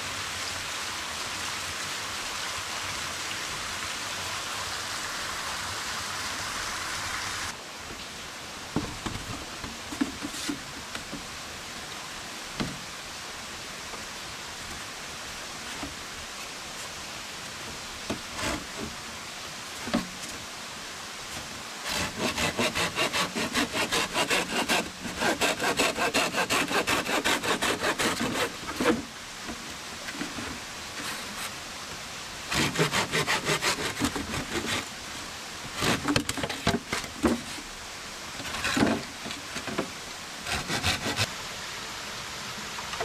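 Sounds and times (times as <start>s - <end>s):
background hiss: 0.0s - 43.0s
saw cutting bamboo: 18.1s - 19.0s, 21.8s - 29.1s, 32.5s - 34.9s, 35.7s - 37.5s, 38.4s - 41.3s.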